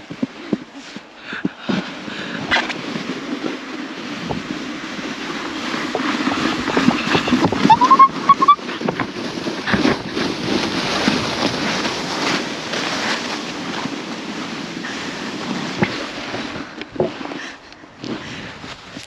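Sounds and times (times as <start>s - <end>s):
footsteps crunching on snow: 0.0s - 19.0s
wind on microphone: 1.7s - 19.0s
squeaky rising tone: 7.6s - 8.6s.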